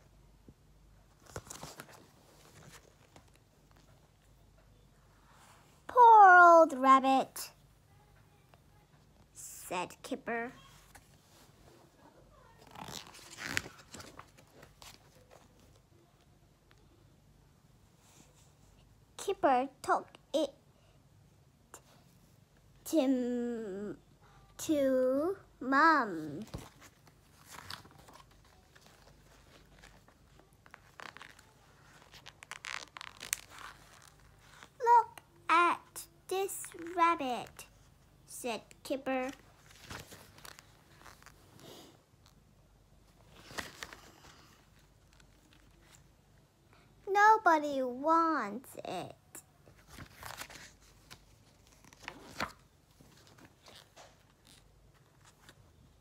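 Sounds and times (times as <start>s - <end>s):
paper pages rustling: 1.1s - 3.9s, 12.6s - 15.8s, 26.4s - 34.8s, 39.2s - 41.6s, 43.1s - 46.1s, 49.7s - 55.9s.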